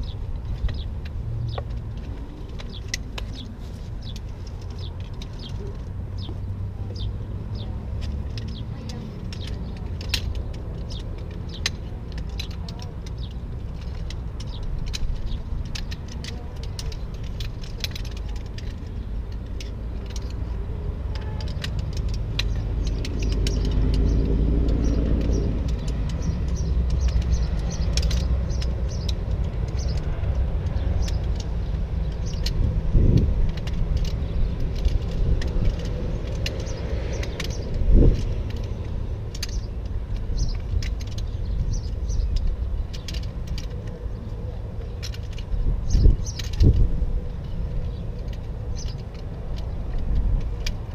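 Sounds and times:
metal poles clinking: 0.0 - 50.9.

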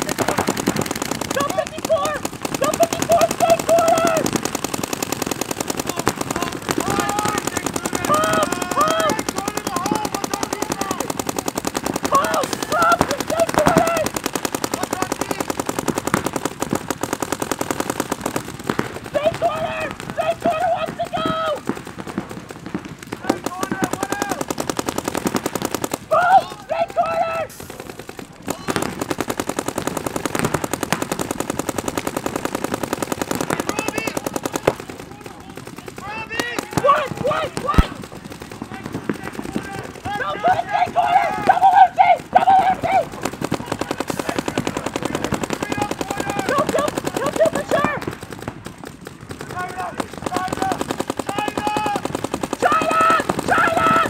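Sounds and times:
players shouting: 0.0 - 29.2, 32.2 - 54.0
paintball markers firing: 0.0 - 54.0.

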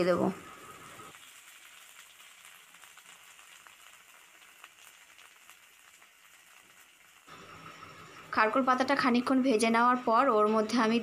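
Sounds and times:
leaves sizzling in oil: 0.0 - 11.0
small crackles: 0.8 - 7.3.

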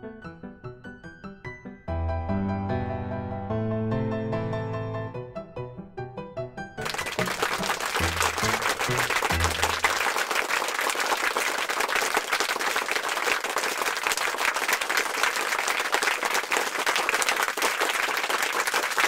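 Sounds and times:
applause: 6.8 - 19.0.

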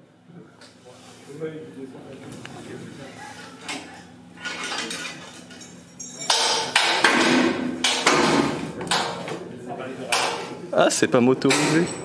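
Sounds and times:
metal frame clanking and rattling: 4.4 - 9.2, 11.4 - 12.0.

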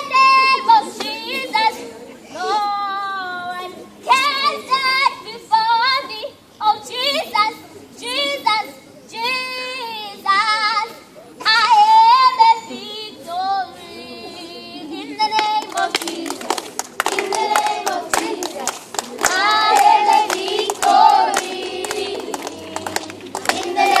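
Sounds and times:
children clapping in rhythm: 15.3 - 24.0
children singing: 19.2 - 24.0.

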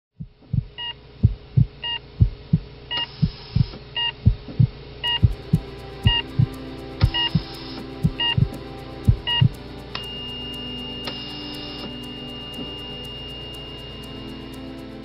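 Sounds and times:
heart monitor beep: 0.2 - 8.6, 9.2 - 14.6
heartbeat thumps: 0.2 - 9.6
steady low hum: 0.2 - 15.0.

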